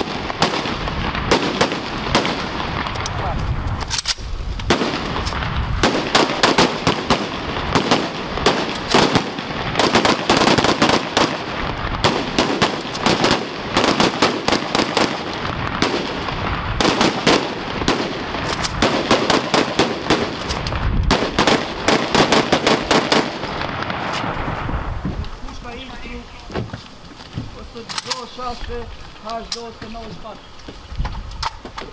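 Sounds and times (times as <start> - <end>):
rapid rifle gunfire: 0.0 - 2.6, 5.8 - 16.2, 16.8 - 20.4, 21.1 - 23.5.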